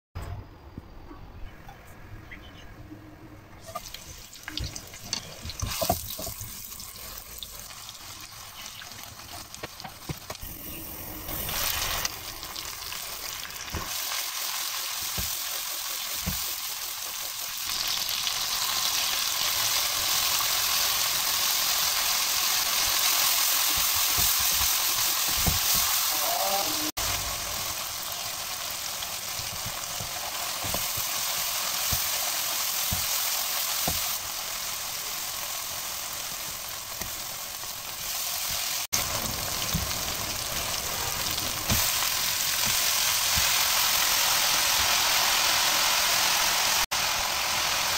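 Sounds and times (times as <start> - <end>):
vegetables sizzling in hot oil: 3.6 - 47.9.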